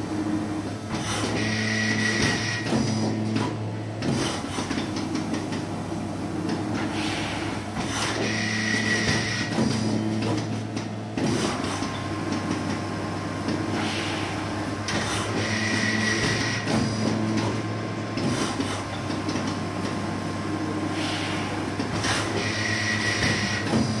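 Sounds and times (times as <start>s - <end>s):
machine humming: 0.0s - 24.0s
machine clicks and knocks: 0.9s - 5.7s, 7.8s - 13.7s, 14.8s - 20.0s.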